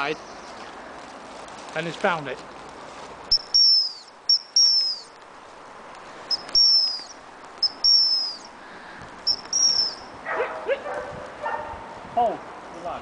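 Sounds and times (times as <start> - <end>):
dog training whistle signals: 3.3 - 5.0, 6.3 - 8.5, 9.3 - 10.0.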